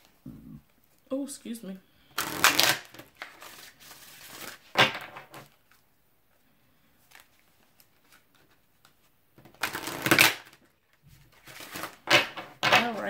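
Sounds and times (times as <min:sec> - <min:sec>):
cards being shuffled: 0:02.1 - 0:05.8, 0:07.0 - 0:13.0.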